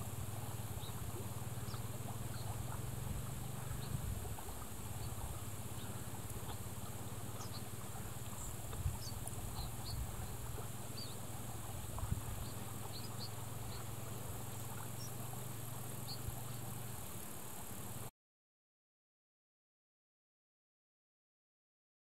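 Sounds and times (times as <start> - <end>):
steady low hum: 0.0 - 18.1
high chirps and ticks: 0.4 - 17.7.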